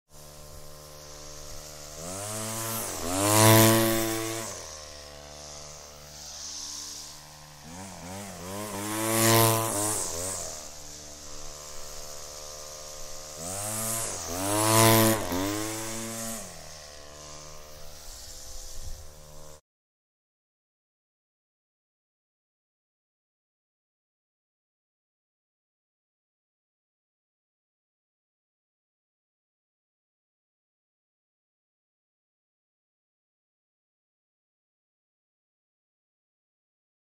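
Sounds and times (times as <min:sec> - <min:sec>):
string trimmer engine revving: 0:00.1 - 0:19.6.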